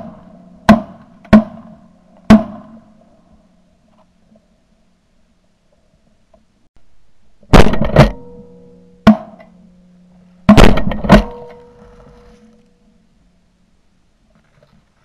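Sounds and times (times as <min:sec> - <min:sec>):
shotgun blasts: 0:07.5 - 0:08.4, 0:10.5 - 0:11.5.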